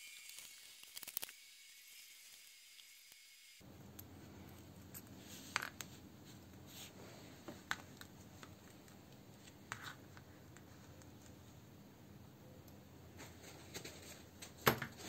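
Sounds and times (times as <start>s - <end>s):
small metal parts clicking: 0.1s - 1.4s
faint steady hum: 3.6s - 15.0s.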